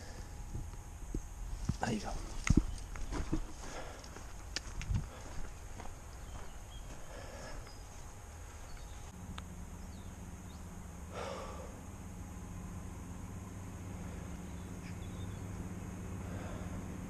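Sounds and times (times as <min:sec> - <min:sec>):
wind rumble on microphone: 0:00.0 - 0:07.0
distant vehicle engine hum: 0:00.0 - 0:17.0
breathy puff: 0:11.1 - 0:11.8.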